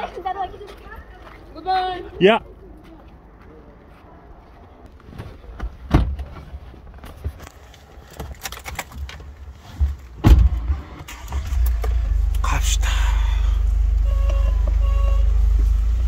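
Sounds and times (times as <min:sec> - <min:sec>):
van doors shutting: 0:09.7 - 0:13.3.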